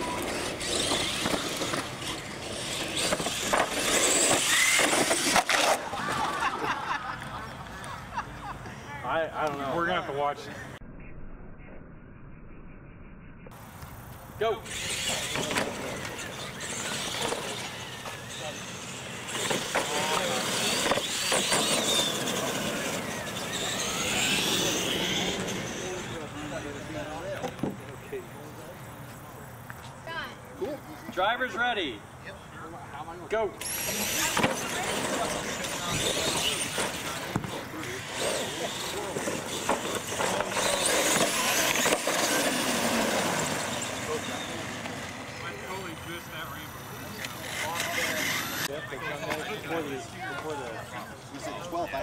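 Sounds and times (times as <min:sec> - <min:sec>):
trucks knocking over ramps: 0:00.0 - 0:06.6, 0:14.7 - 0:25.8, 0:33.6 - 0:45.2
toy truck motors whining: 0:00.0 - 0:06.7, 0:14.2 - 0:27.5, 0:33.6 - 0:51.9
tyres rolling on concrete: 0:00.0 - 0:09.8, 0:14.7 - 0:30.2, 0:33.6 - 0:52.0.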